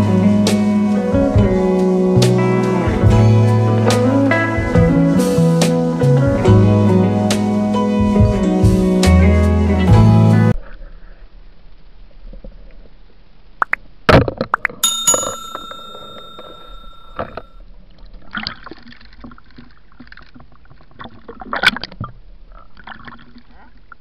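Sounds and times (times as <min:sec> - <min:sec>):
bell ding: 0:14.8 - 0:17.5
faint water noise: 0:17.2 - 0:24.0.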